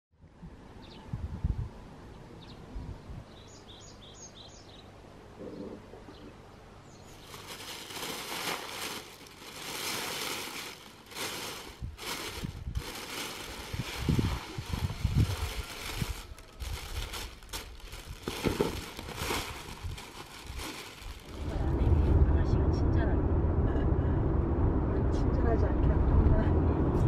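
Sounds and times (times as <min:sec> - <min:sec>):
small bird chirping: 0:03.3 - 0:04.9
seeds poured on plastic tarp: 0:07.2 - 0:21.6.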